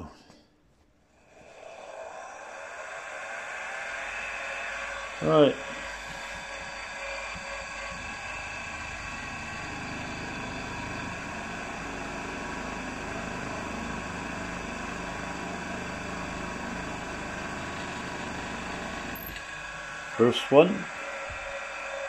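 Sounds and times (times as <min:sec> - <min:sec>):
milling machine running: 0:01.4 - 0:22.0
motor hum: 0:01.4 - 0:22.0
drill spotting metal: 0:04.4 - 0:21.7.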